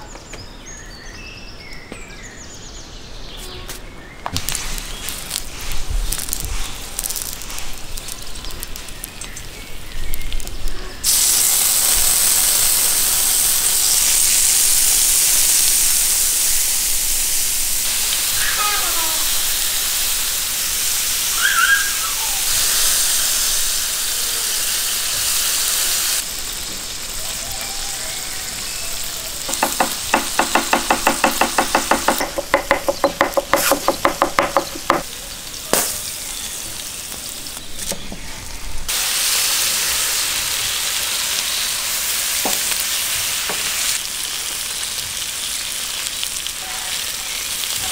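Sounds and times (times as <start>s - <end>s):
meat sizzling on griddle: 4.3s - 47.9s
knife chopping on wooden board: 29.5s - 35.0s.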